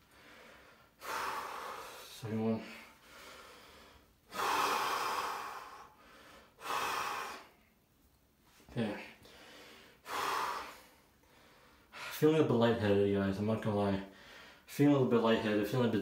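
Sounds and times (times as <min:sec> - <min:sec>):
man breathing hard: 0:00.0 - 0:07.7, 0:09.2 - 0:12.2, 0:14.1 - 0:14.7.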